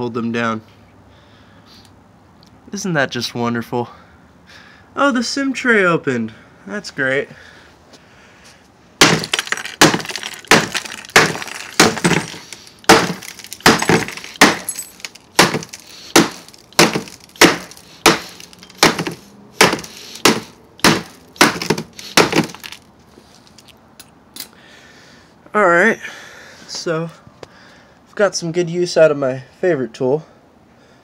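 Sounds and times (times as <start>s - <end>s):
phone smashed with tool: 9.0s - 22.8s.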